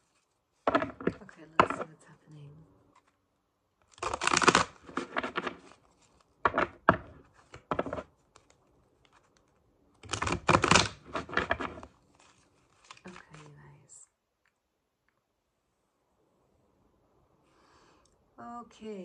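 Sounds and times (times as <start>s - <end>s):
cards being shuffled: 0.0s - 2.0s, 3.8s - 13.6s.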